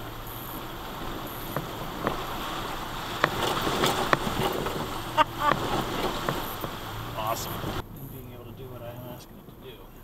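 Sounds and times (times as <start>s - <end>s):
vehicle knocks and clunks: 0.0s - 7.8s
water sloshing around tyres: 0.0s - 10.0s.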